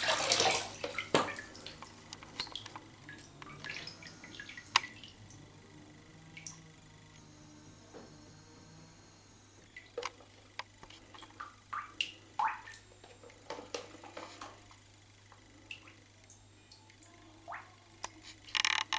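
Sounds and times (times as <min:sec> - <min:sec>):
water dripping into bathwater: 0:00.0 - 0:05.4, 0:11.1 - 0:13.9, 0:15.7 - 0:18.1
low steady hum: 0:00.0 - 0:18.9.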